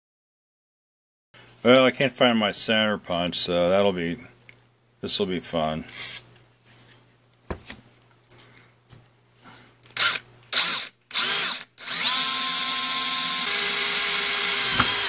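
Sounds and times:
cordless drill boring metal: 0:10.0 - 0:15.0.

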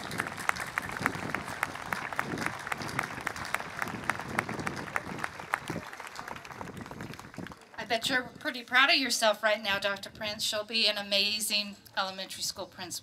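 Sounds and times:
crowd applauding: 0:00.0 - 0:07.8.

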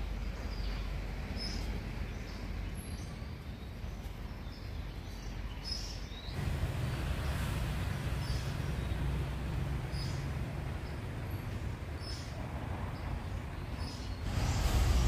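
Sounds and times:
low outdoor rumble: 0:06.3 - 0:15.0.

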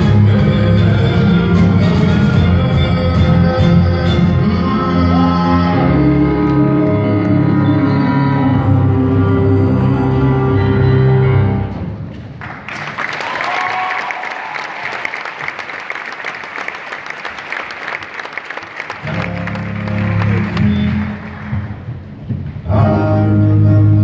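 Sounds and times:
low sustained stage music: 0:00.0 - 0:12.3, 0:19.0 - 0:24.0
audience applause: 0:12.4 - 0:21.8
audience cheering: 0:12.7 - 0:21.6.

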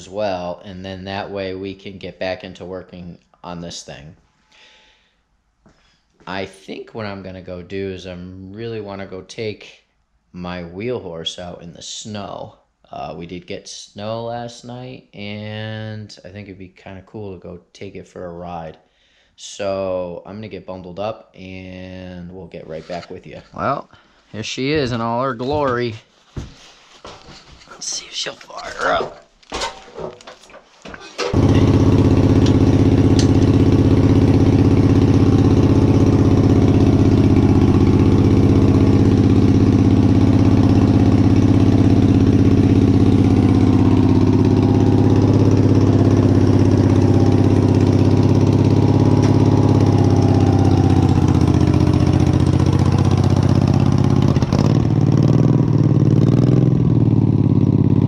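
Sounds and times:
garden tractor engine running: 0:31.2 - 0:54.7.

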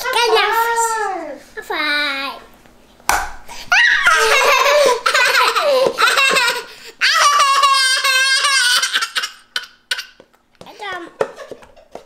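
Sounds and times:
toddler laughing: 0:03.9 - 0:10.3.

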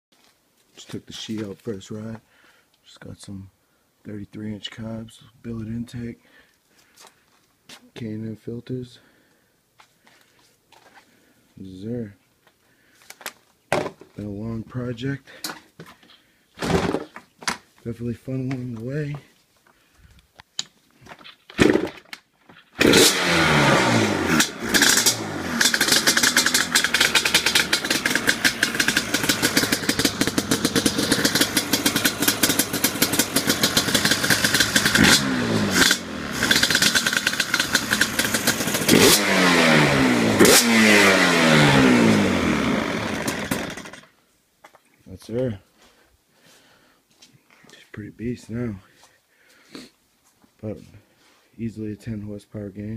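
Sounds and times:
two-stroke engine starting and revving: 0:21.6 - 0:21.9, 0:22.8 - 0:44.1.

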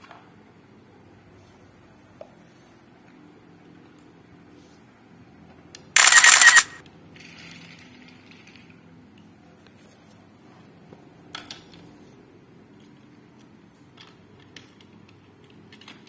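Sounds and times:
toy train rattling whirr: 0:06.0 - 0:08.7.

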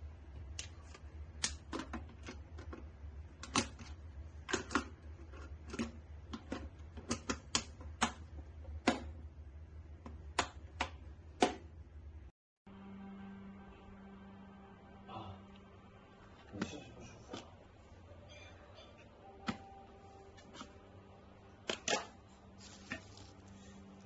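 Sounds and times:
steady low hum: 0:07.7 - 0:24.0.

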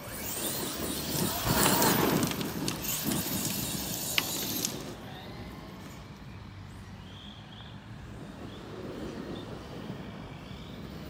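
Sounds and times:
rc truck driving over dirt: 0:00.0 - 0:06.4.

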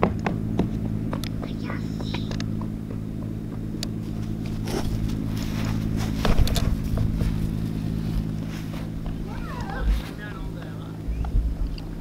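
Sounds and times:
low mechanical hum: 0:00.0 - 0:12.0
heavy bump: 0:02.9 - 0:11.7
footsteps on grass: 0:04.0 - 0:11.0.

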